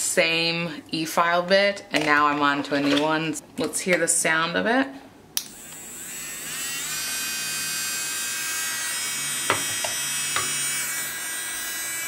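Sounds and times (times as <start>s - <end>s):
electric nail drill whine: 5.4s - 12.0s.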